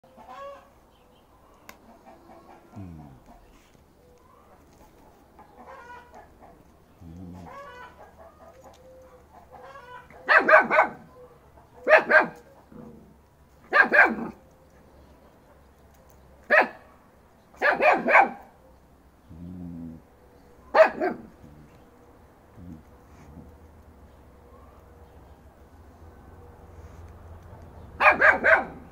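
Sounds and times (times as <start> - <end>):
hens clucking faintly: 1.4 - 13.3
dog barking: 10.1 - 12.5, 13.7 - 14.4, 16.5 - 18.6, 20.7 - 21.3, 28.0 - 28.9.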